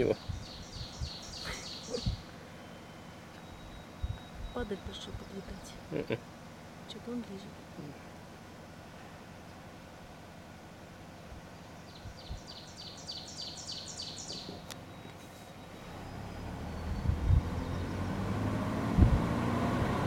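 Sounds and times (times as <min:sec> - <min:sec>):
songbird singing: 0:00.0 - 0:19.8
car engine and tyre noise: 0:05.8 - 0:20.0.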